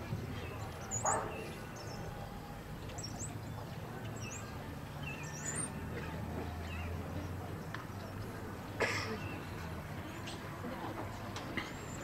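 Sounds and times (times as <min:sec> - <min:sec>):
faint outdoor background: 0:00.0 - 0:12.0
small birds chirping: 0:00.3 - 0:02.2, 0:02.8 - 0:05.8.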